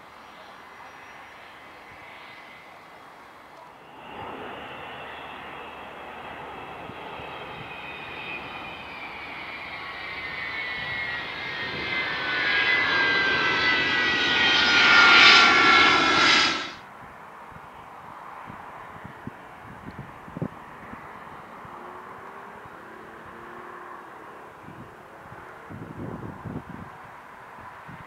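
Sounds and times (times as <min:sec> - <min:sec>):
jet engines howling: 0:03.8 - 0:16.8
whistling tones sliding down: 0:03.9 - 0:16.8.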